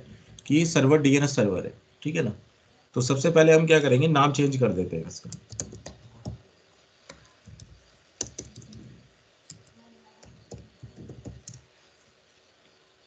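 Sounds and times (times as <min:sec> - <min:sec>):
keyboard typing: 0:05.2 - 0:06.4, 0:07.0 - 0:11.6.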